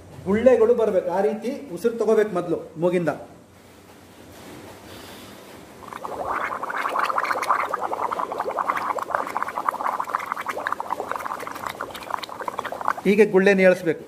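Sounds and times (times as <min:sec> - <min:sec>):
bubbling through a straw: 0:05.8 - 0:13.3.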